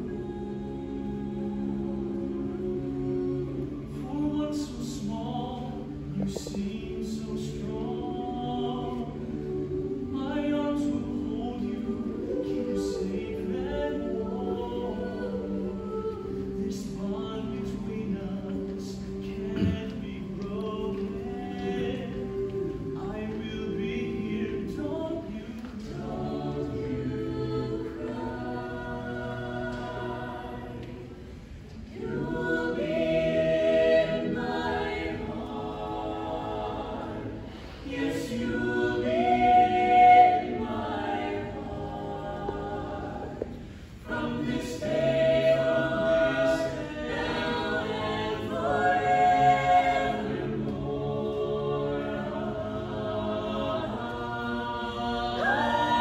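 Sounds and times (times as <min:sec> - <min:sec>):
choir singing in harmony: 0:00.0 - 0:56.0.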